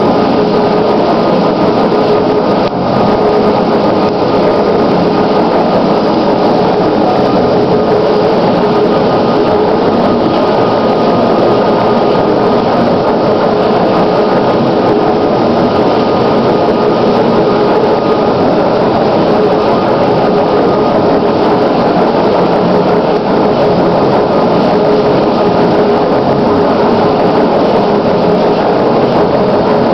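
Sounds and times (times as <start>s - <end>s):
boring mill machine drone: 0.0s - 29.9s.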